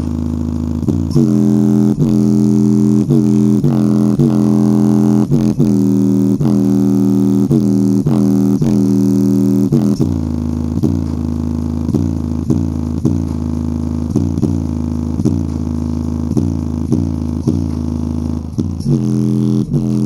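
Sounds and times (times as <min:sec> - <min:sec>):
deep bass notes from speaker: 0:00.0 - 0:20.0.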